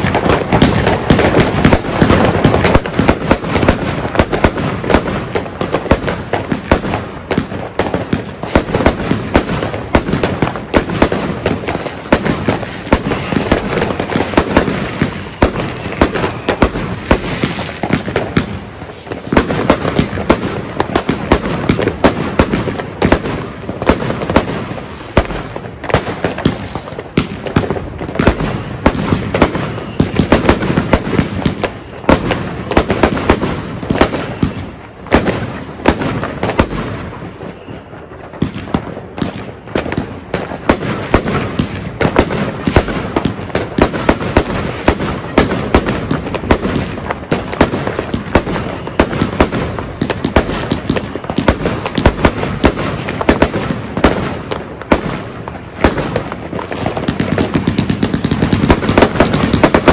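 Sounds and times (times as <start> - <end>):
firework battery bangs and crackles: 0.0 - 59.9.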